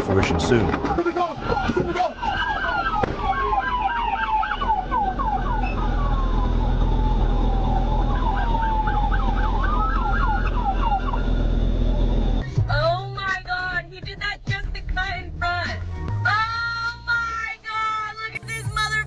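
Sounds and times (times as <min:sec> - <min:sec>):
steady low rumble: 0:00.0 - 0:19.0
police siren wail: 0:00.7 - 0:12.4
fast siren yelp: 0:00.8 - 0:12.4.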